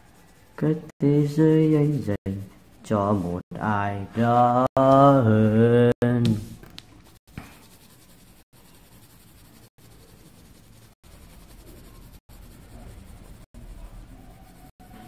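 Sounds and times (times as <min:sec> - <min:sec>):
pen scratching on paper: 0:00.0 - 0:03.4, 0:07.0 - 0:15.0.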